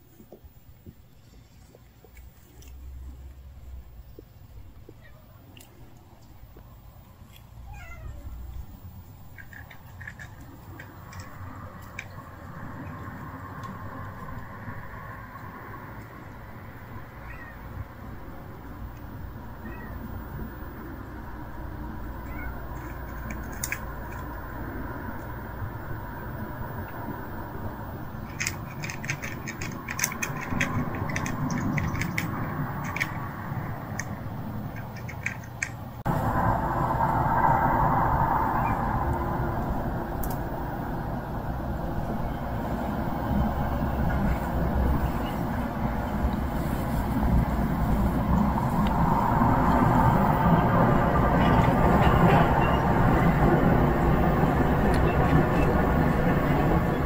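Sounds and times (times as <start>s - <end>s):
cat chewing crunches: 0.1s - 3.4s, 4.1s - 7.6s, 8.6s - 14.4s, 22.2s - 35.8s
cat meowing: 7.6s - 8.4s, 17.1s - 17.8s, 19.6s - 20.2s, 22.1s - 23.0s.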